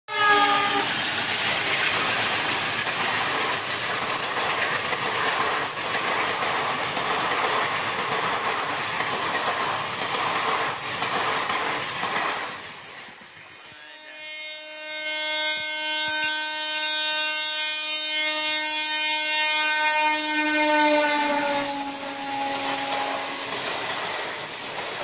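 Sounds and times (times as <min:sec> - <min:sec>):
train rumbling past: 0:00.1 - 0:25.0
wheels clattering over rail joints: 0:00.6 - 0:13.2.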